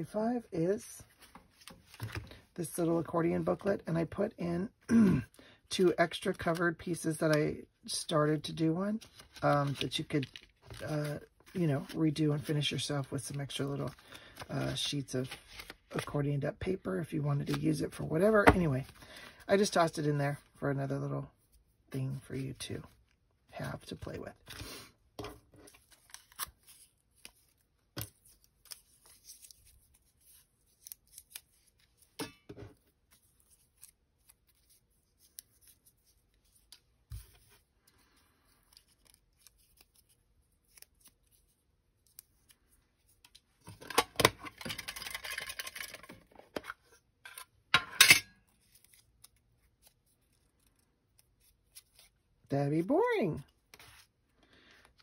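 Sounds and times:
paper crinkling: 0:08.9 - 0:16.2, 0:25.5 - 0:32.2, 0:32.8 - 0:43.6, 0:48.5 - 0:52.2.

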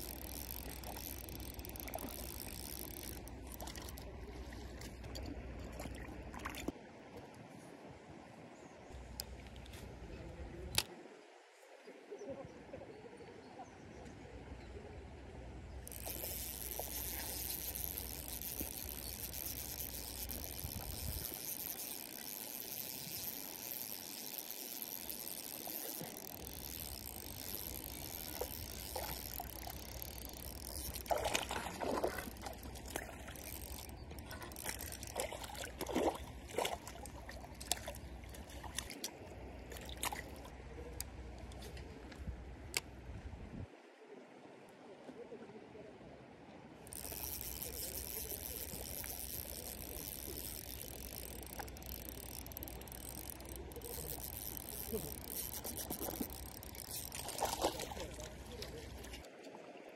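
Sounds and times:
water pouring and trickling: 0:00.0 - 0:06.8, 0:15.9 - 0:39.2, 0:46.9 - 0:59.5
water splashing: 0:15.9 - 0:40.5, 0:46.9 - 0:59.9.

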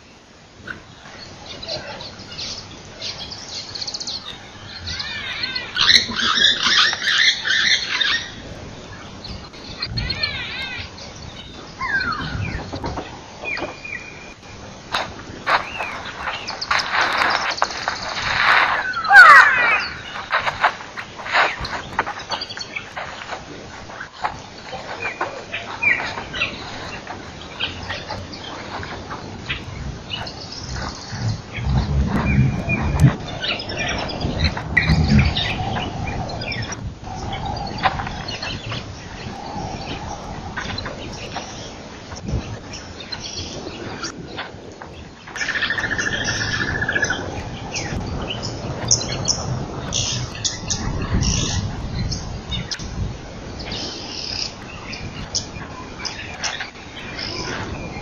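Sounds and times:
birds chirping and whistling: 0:01.2 - 0:14.7, 0:15.5 - 0:44.4, 0:45.3 - 0:52.8
low rumble: 0:23.0 - 0:42.8.

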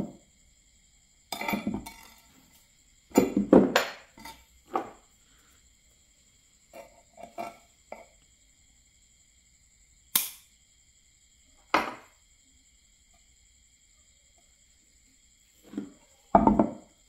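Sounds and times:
pliers snapping through wire: 0:10.1 - 0:10.4.

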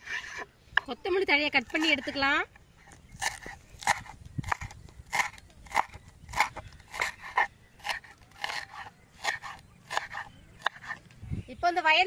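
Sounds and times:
knife chopping on wooden board: 0:03.2 - 0:11.0.

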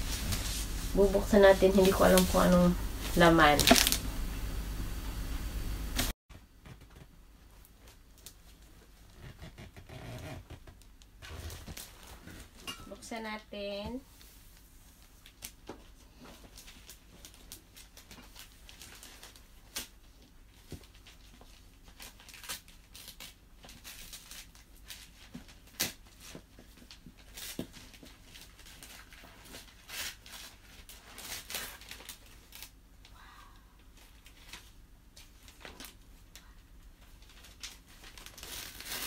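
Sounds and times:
wrapping paper crinkling and tearing: 0:00.0 - 0:04.1, 0:11.2 - 0:12.6, 0:14.9 - 0:39.0.

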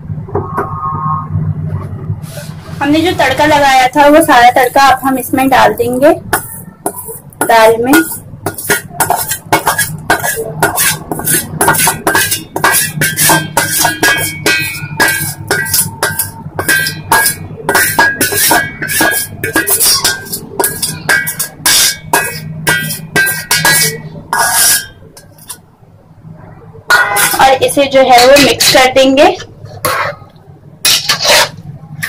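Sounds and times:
metal spatula scraping a steel pan: 0:06.3 - 0:25.6, 0:26.9 - 0:31.7.

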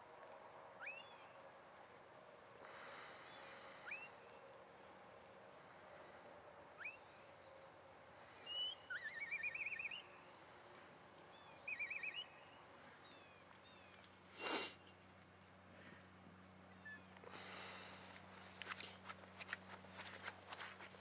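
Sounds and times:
whistled chirps: 0:00.8 - 0:01.2, 0:03.8 - 0:04.3, 0:06.8 - 0:07.1, 0:08.4 - 0:10.3, 0:11.4 - 0:12.6
warbling whistled trills: 0:08.5 - 0:10.3, 0:11.6 - 0:12.6.

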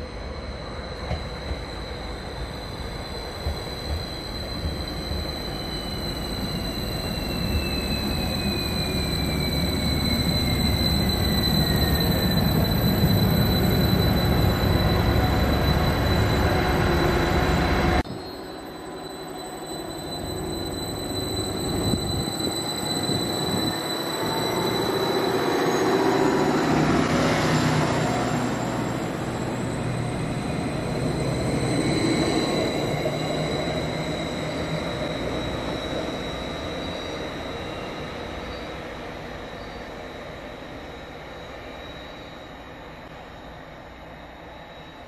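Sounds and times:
train rumble: 0:00.0 - 0:18.6.

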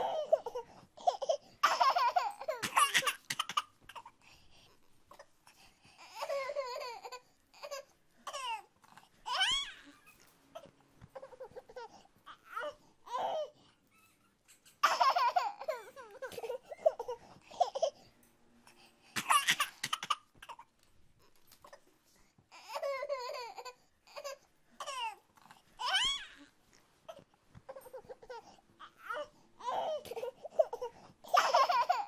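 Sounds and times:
baby babbling and laughing: 0:27.1 - 0:32.0.

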